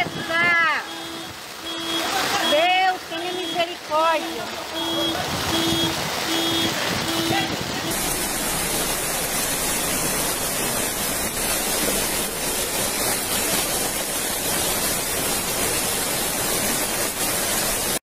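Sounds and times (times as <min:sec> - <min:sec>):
floodwater rushing: 0:00.0 - 0:18.0.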